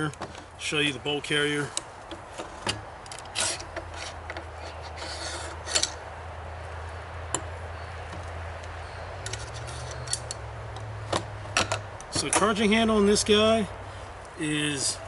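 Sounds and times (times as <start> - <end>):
metallic clicks and scrapes: 1.6 - 6.0, 8.2 - 12.6.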